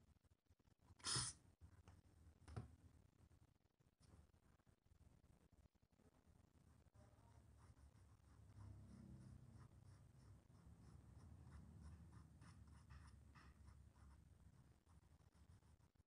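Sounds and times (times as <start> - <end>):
pencil scratching on paper: 7.3 - 16.0.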